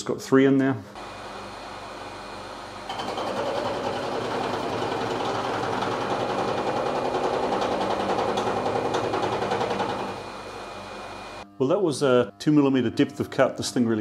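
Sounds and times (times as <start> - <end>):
milling cutter striking metal: 2.9 - 10.3
spindle hum: 3.8 - 14.0.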